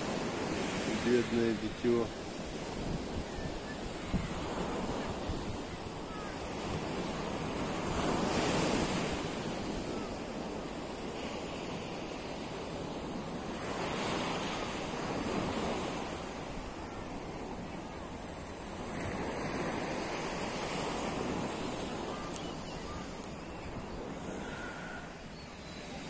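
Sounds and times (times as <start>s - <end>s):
surf washing onto beach: 0.0s - 26.0s
wind rumbling on microphone: 2.1s - 26.0s.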